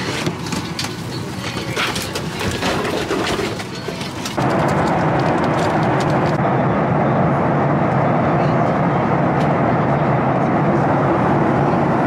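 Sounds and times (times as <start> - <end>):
airliner cabin rush: 0.0 - 12.0
ground noise: 4.4 - 8.2.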